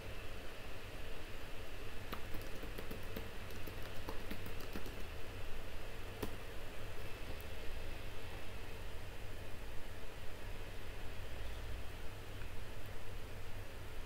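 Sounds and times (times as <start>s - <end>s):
background hiss and hum: 0.0s - 14.0s
keyboard typing: 2.1s - 5.2s.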